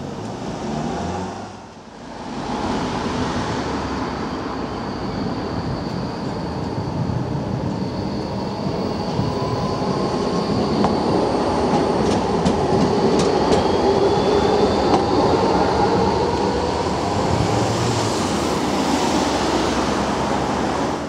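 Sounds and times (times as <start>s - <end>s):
electric tram passing: 0.0s - 21.0s
faint high squeal: 3.9s - 11.4s, 13.4s - 17.6s.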